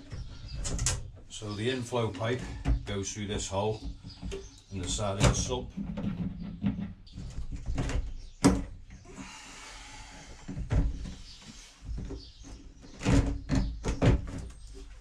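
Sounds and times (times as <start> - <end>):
plastic knocks and bumps: 2.1 - 9.0, 10.5 - 15.0.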